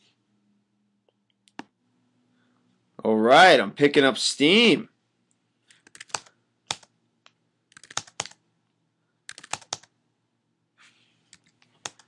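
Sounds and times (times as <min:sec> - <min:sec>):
computer keyboard typing: 0:05.7 - 0:06.9, 0:07.7 - 0:08.4, 0:09.2 - 0:09.9, 0:11.3 - 0:12.0.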